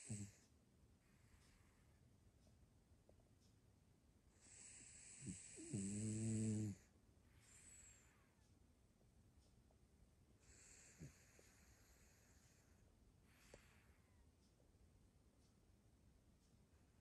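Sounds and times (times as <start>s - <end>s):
dog snoring: 0.0s - 0.4s, 4.4s - 6.9s, 10.4s - 12.7s.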